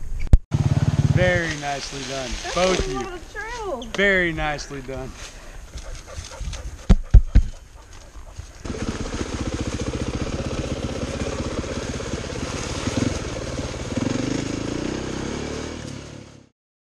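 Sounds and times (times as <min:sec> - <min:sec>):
dirt bike engine running: 0:00.5 - 0:04.6, 0:05.7 - 0:16.5.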